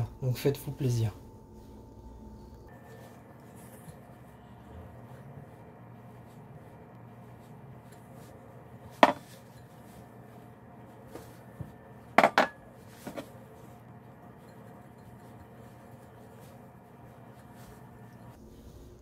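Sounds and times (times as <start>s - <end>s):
kitchenware knocking and clinking: 9.0s - 9.4s, 12.2s - 13.3s.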